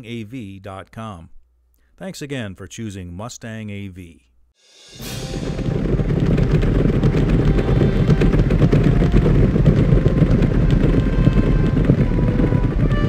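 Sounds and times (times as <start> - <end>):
horses galloping: 5.0 - 13.0.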